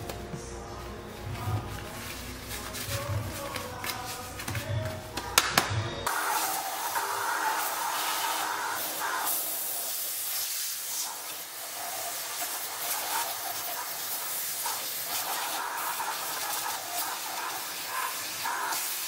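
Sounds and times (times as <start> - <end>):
vacuum cleaner sucking: 6.1 - 19.0.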